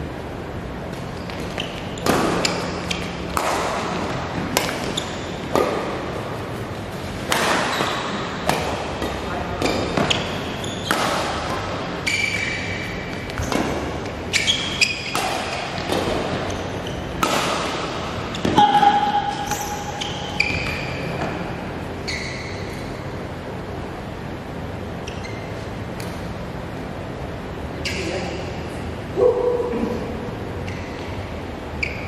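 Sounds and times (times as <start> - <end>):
sneakers squeaking on court floor: 0.8 - 23.3, 24.8 - 26.2, 27.8 - 28.4, 30.5 - 32.0
rackets striking shuttlecock: 0.9 - 6.2, 7.2 - 21.3.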